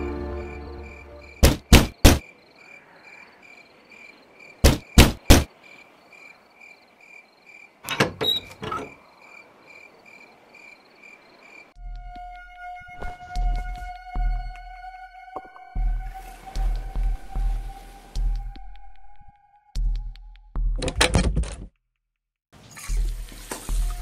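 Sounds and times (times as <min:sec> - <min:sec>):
crickets chirping: 0:00.0 - 0:19.2.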